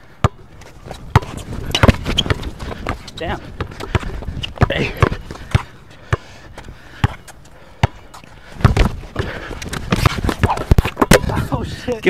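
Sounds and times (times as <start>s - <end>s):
basketball bouncing on hard court: 0.2s - 6.3s, 8.6s - 11.5s.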